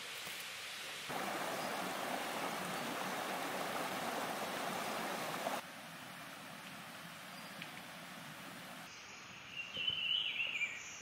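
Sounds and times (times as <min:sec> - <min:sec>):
forest hiss: 0:00.0 - 0:11.0
stream rushing over stones: 0:00.4 - 0:05.6.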